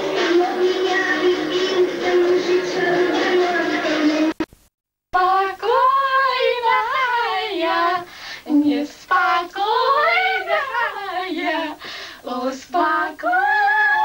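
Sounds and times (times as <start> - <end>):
girls singing: 0.0 - 4.4, 5.2 - 14.0.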